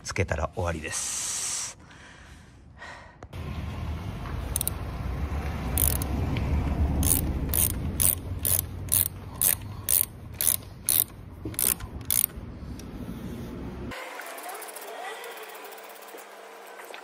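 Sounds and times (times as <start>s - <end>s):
ratchet wrench clicking: 4.5s - 4.8s, 5.7s - 6.2s, 7.0s - 12.9s.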